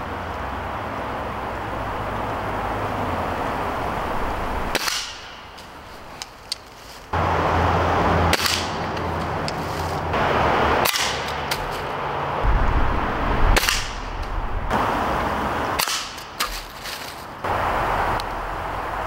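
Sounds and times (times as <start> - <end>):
loud rushing noise: 7.2 - 16.4
air rifle cracks: 8.3 - 8.8.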